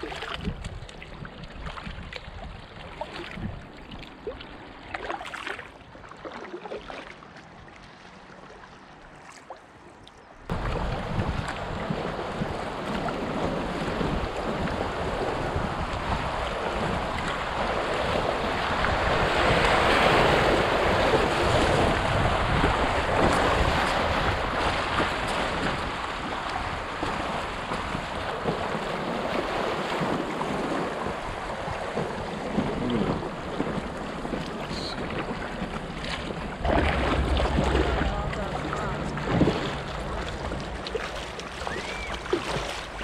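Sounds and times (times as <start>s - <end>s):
wind buffeting microphone: 0.0s - 4.0s, 10.5s - 43.0s
water splashing against kayak: 0.0s - 43.0s
river water rushing over gravel: 22.8s - 43.0s.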